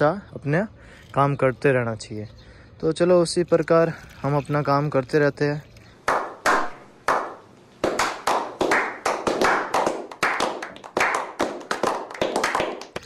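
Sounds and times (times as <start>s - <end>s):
people clapping: 6.1s - 13.0s.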